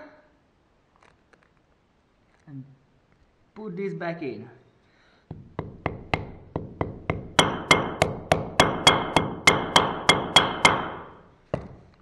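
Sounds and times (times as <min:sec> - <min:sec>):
hammer tapping metal: 0:05.3 - 0:11.8.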